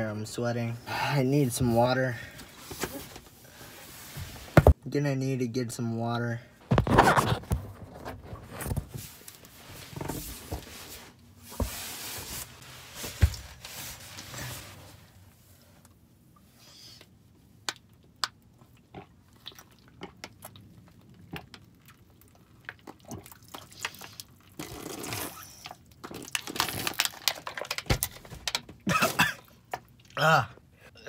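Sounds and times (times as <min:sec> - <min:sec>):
plastic bottle crackling: 0:26.0 - 0:28.7.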